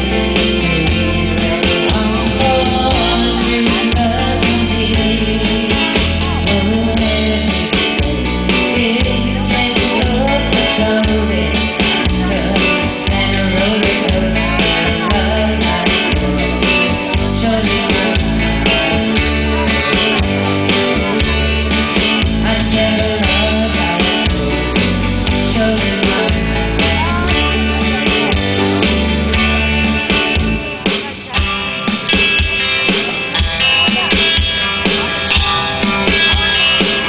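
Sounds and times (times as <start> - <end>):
bass line: 0.0 - 37.0
guitar: 0.0 - 37.0
person singing: 0.0 - 37.0.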